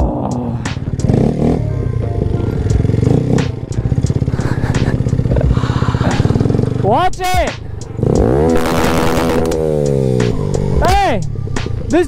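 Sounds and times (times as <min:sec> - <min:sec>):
small motorcycle engine revving: 0:00.8 - 0:06.8, 0:07.8 - 0:10.8
sharp clicks: 0:08.1 - 0:09.6.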